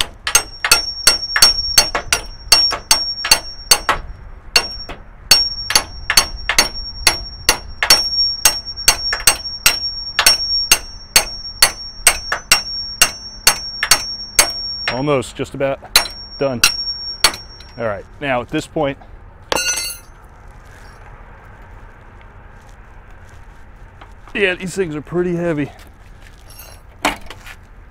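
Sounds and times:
metallic ringing: 0.3 - 18.0, 19.5 - 20.2.

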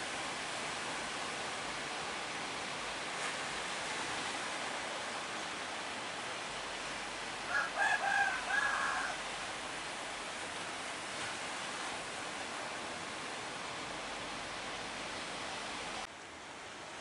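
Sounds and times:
surf breaking on beach: 0.0 - 16.1
rooster crowing: 7.5 - 9.2.

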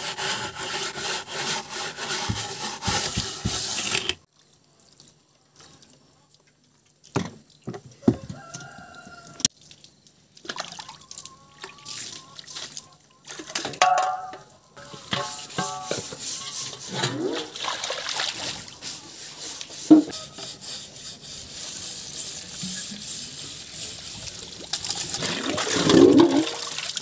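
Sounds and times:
rooster crowing: 8.1 - 9.5
chicken clucking: 11.3 - 13.2.

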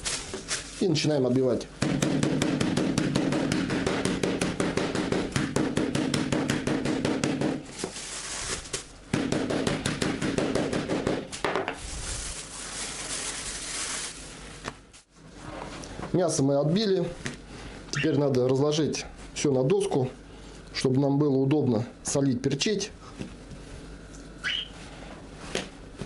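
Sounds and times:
plastic bag rustling: 0.0 - 1.2, 7.7 - 9.0, 11.8 - 15.1
meat mallet pounding: 1.8 - 7.7, 9.1 - 11.3.

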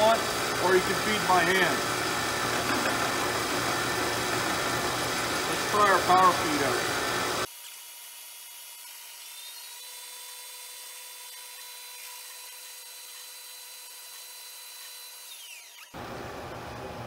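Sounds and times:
milling machine whine: 0.0 - 7.5.

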